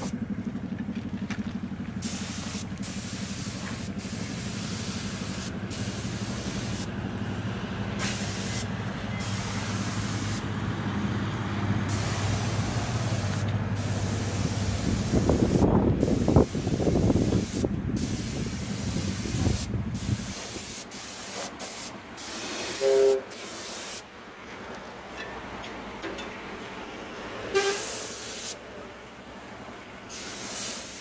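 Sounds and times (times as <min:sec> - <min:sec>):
loud rumble: 0:00.0 - 0:20.3
paint spray gun hissing: 0:02.0 - 0:06.9, 0:08.0 - 0:10.4, 0:11.9 - 0:24.0, 0:27.6 - 0:28.6, 0:30.1 - 0:31.0.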